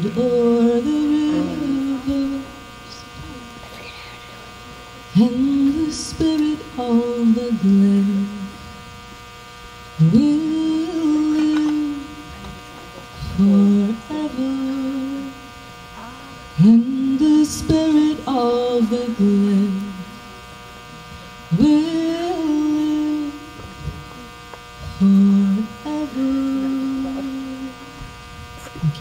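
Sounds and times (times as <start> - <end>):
woman singing unaccompanied: 0.0 - 3.5, 5.0 - 8.6, 10.0 - 20.2, 21.5 - 23.7, 24.9 - 27.9
electrical mains hum: 0.0 - 29.0.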